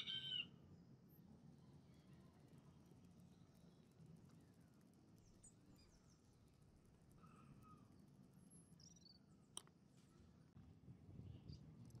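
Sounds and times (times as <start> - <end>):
faint chirps: 7.1 - 9.5.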